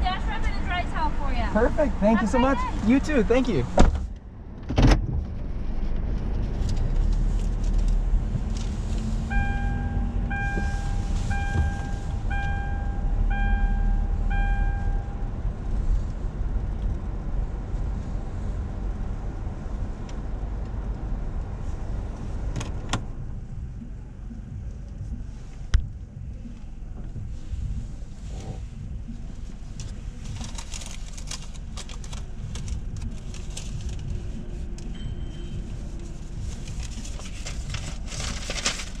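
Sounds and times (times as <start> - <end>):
car engine and tyres rumble: 0.0 - 39.0
electronic beeps: 9.3 - 15.2.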